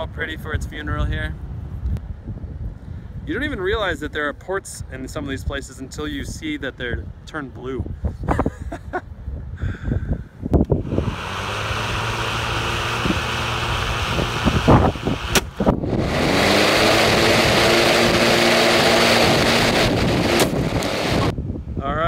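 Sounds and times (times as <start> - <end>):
lawn mower running: 10.8 - 21.3.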